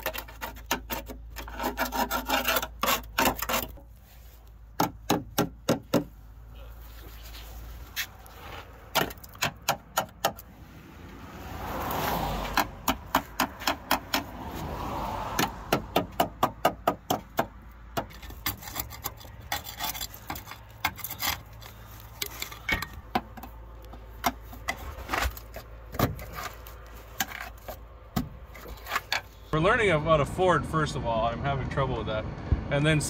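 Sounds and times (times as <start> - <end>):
pry bar scraping metal: 0.0 - 3.9, 15.3 - 29.5.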